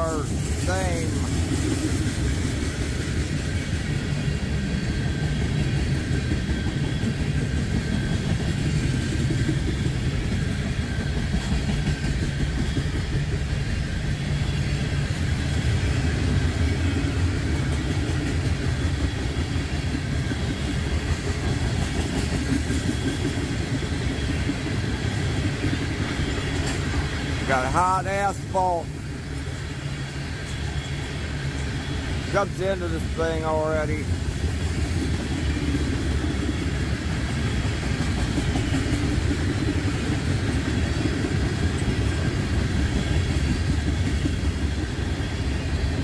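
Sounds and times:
freight train cars rumbling: 0.0s - 46.0s.

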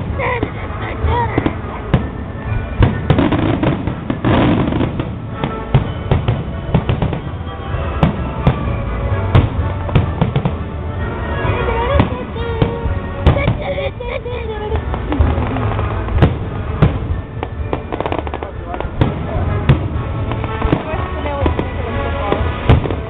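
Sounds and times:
fireworks bursting bangs: 0.0s - 14.0s, 14.7s - 23.0s
low rumble: 8.2s - 22.9s.

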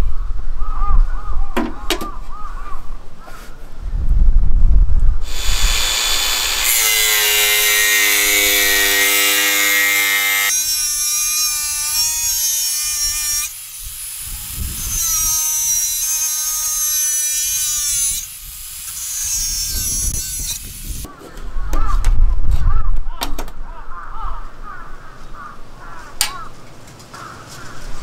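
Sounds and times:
angle grinder cutting steel: 5.2s - 21.1s.

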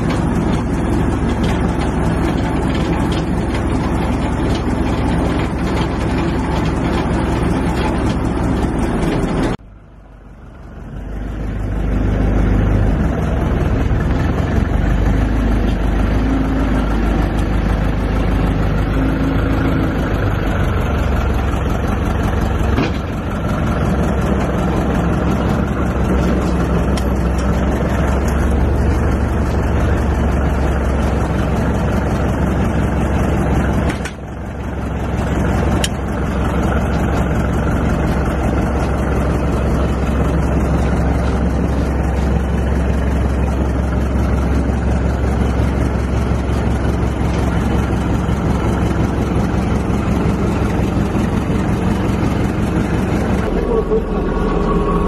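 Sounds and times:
crane engine rumbling: 0.0s - 55.0s.

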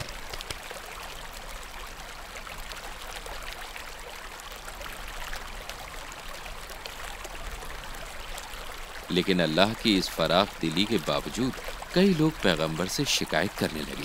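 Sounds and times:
steady background hiss: 4.9s - 14.0s.

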